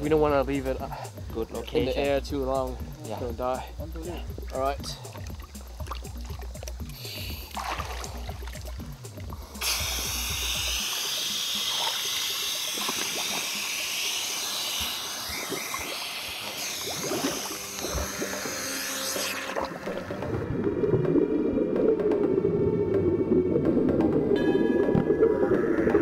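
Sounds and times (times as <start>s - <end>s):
background music: 0.0s - 26.0s
water sloshing and splashing: 4.0s - 9.8s, 11.7s - 13.6s, 15.3s - 22.2s.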